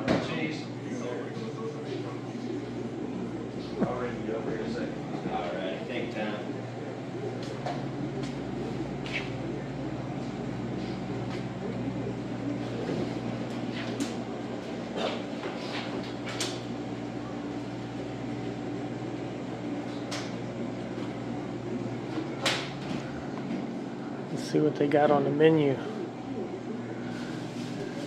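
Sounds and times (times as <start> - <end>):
equipment humming: 0.0 - 28.0.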